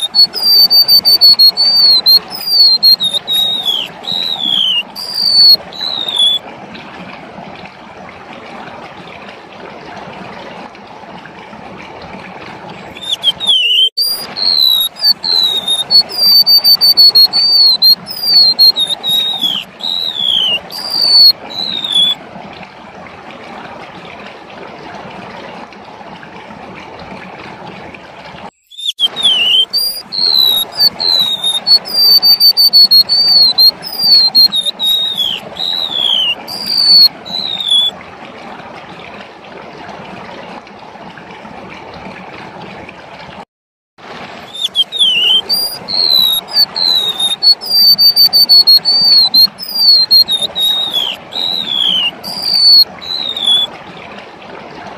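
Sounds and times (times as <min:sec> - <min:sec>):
bird singing high whistled notes: 0:00.0 - 0:06.4, 0:12.9 - 0:22.2, 0:28.6 - 0:37.9, 0:44.5 - 0:53.7.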